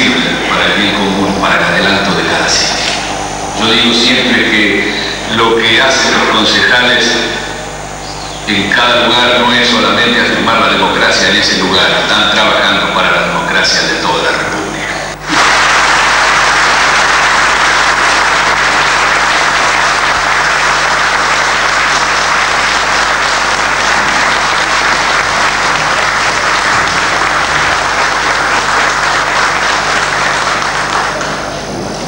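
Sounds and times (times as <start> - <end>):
audience applause: 15.2 - 31.9.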